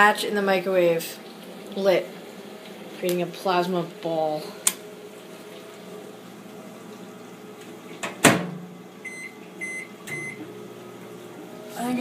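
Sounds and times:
microwave running hum: 0:00.0 - 0:12.0
microwave door shutting: 0:08.0 - 0:08.7
short keypad beeps: 0:09.1 - 0:10.4.

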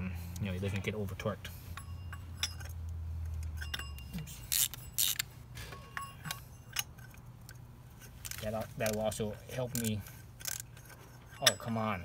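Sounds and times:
metal wrench clinking on filter: 0:01.7 - 0:02.8, 0:03.4 - 0:07.2, 0:08.2 - 0:12.0.

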